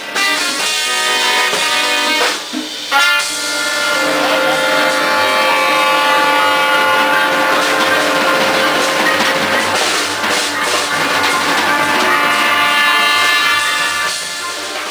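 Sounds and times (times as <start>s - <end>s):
latin jazz band playing: 0.0s - 14.9s
trumpets holding long notes: 0.0s - 14.9s
sharp drum hits: 0.4s - 14.9s.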